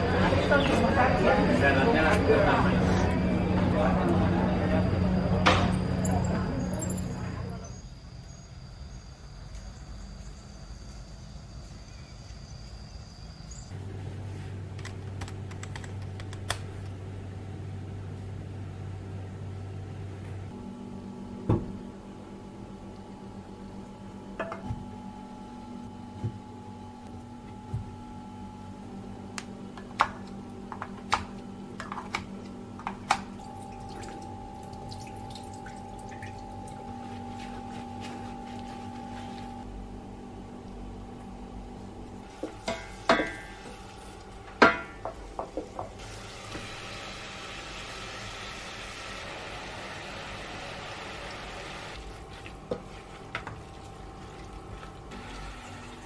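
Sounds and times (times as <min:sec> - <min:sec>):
steady high whine: 0:00.0 - 0:13.9
room low hum: 0:00.0 - 0:56.0
water sloshing and dripping: 0:33.4 - 0:37.4, 0:52.0 - 0:56.0.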